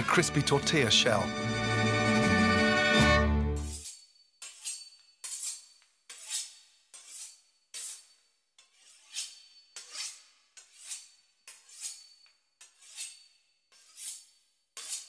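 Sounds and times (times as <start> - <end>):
knife sawing through crisp pastry: 3.6 - 15.0.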